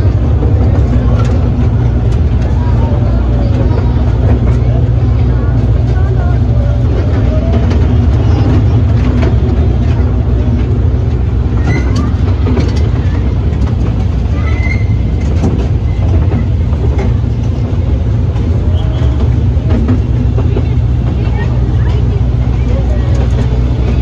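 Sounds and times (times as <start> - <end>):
toy train engine rumbling: 0.0 - 24.0
wheels clicking and carriage rattling: 0.0 - 24.0.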